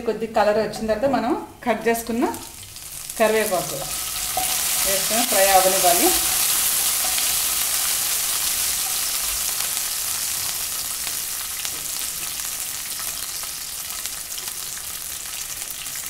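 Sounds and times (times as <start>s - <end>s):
spices sizzling in hot oil: 0.7s - 16.0s
wooden spatula stirring: 2.7s - 9.6s.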